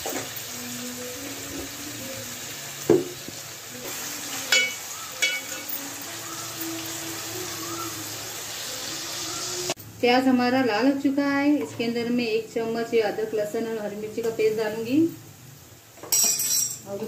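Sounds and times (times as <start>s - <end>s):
onions sizzling in hot oil: 0.0s - 9.9s
spoon clinking against pot: 4.5s - 5.9s, 16.1s - 16.8s.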